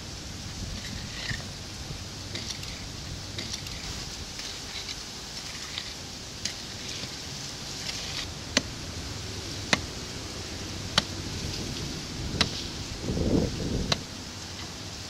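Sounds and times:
pick scraping in soil: 0.5 - 8.8
pick striking earth wall: 9.7 - 9.9, 12.3 - 12.7, 13.7 - 14.1.

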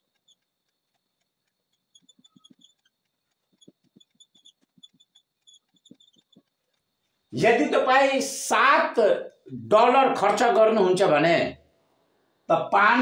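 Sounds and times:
marker pen writing on whiteboard: 0.0 - 7.3.

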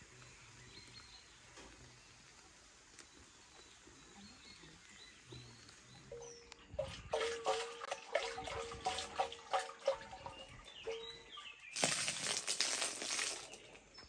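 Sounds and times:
liquid sloshing in churn: 6.8 - 13.7
liquid splashing onto ground: 6.8 - 14.0.

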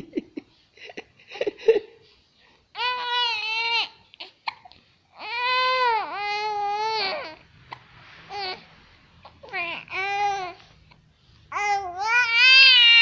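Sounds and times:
baby whining cries: 2.7 - 13.0.

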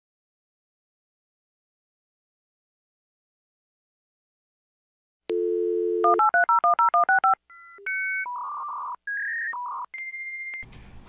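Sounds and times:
telephone dial tone: 5.3 - 9.0
touch-tone dialling beeps: 5.3 - 10.6.

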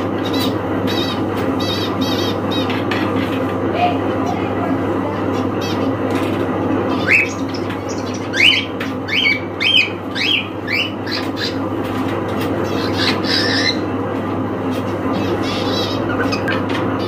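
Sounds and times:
harsh cockatiel call: 0.2 - 4.3, 6.9 - 11.6, 12.6 - 13.9, 15.1 - 17.0
cockatiel chirping: 12.8 - 13.8.

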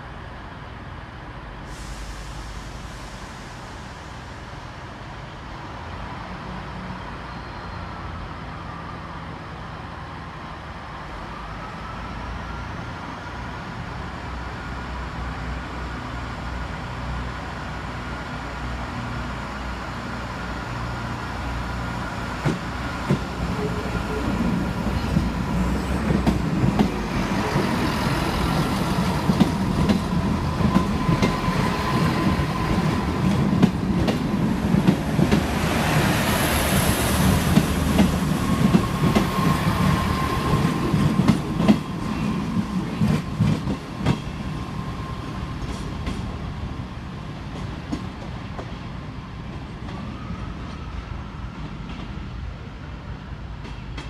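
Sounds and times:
diesel train engines running: 0.0 - 54.0
brief high squeal: 7.3 - 8.0.

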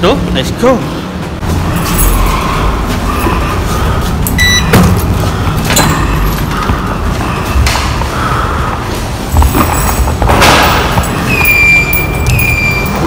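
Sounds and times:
steady low rumble: 0.9 - 11.3
short electronic beep: 4.4 - 4.8.

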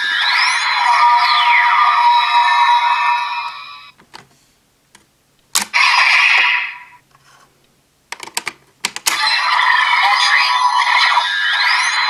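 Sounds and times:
toy electronic sound effects: 0.0 - 3.9, 5.7 - 7.0, 9.1 - 12.0.

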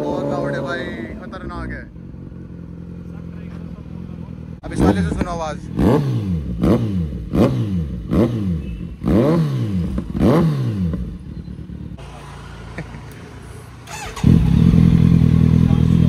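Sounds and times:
motorcycle engine revving: 0.0 - 16.0
motorcycle engine idling: 1.2 - 9.1, 10.8 - 16.0.

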